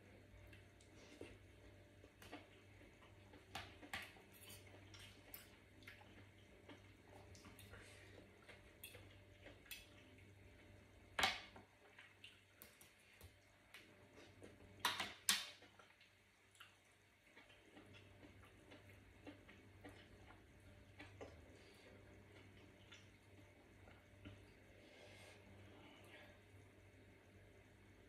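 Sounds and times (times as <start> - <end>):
soft wet chewing: 0.1 - 27.0.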